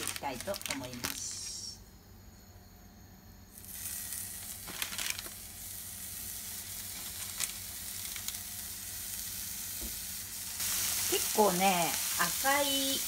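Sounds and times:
oil popping and crackling: 0.0 - 1.6, 3.5 - 13.0
meatballs sizzling in frying pan: 3.5 - 13.0.

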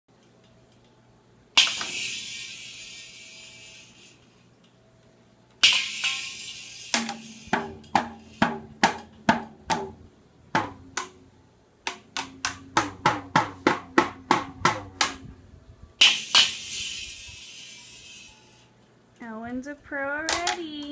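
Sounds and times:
toy drum hits: 1.6 - 2.2, 5.6 - 10.0, 10.6 - 11.2, 11.9 - 15.2, 16.0 - 17.0, 20.3 - 20.6
toy cymbal crash: 1.6 - 4.2, 5.6 - 8.7, 16.0 - 18.7.

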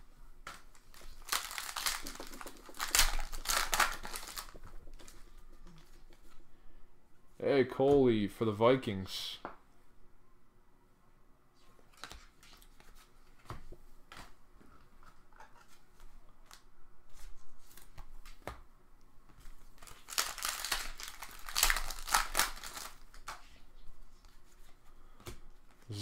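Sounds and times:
wrapper crinkling and tearing: 0.7 - 5.2, 19.8 - 23.4
trading cards clicking: 1.2 - 6.1.

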